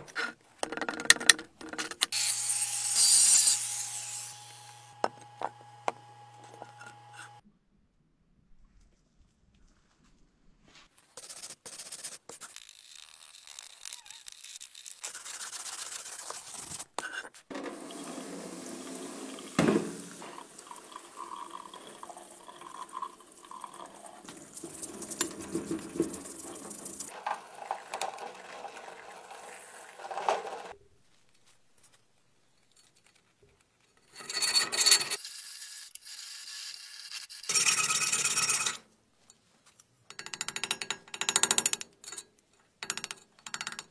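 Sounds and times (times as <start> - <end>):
rotary tool grinding: 1.7 - 7.4, 12.4 - 17.2, 24.3 - 28.3, 34.2 - 38.8
brush scrubbing metal: 14.7 - 20.5, 24.3 - 28.2
water running: 17.5 - 30.8.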